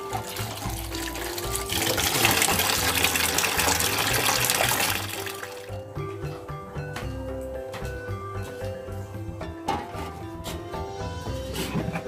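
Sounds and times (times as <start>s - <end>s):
tap water running and splashing: 0.0s - 5.8s
background music: 0.0s - 12.0s.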